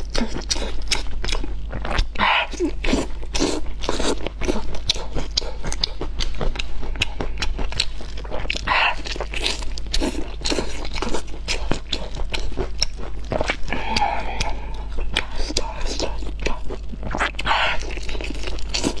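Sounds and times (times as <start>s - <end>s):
close chewing with mouth clicks: 0.0s - 19.0s.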